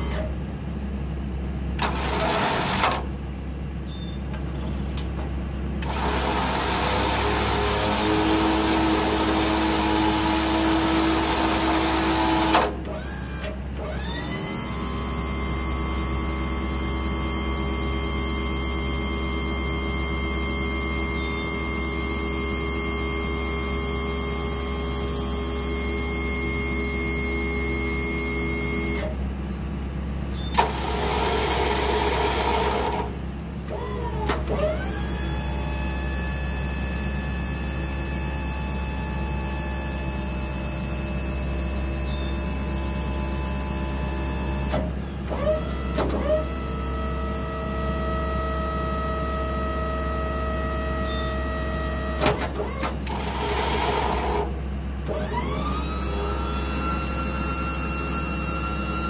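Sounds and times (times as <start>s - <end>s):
hydraulic pump humming and whining: 0.0s - 59.0s.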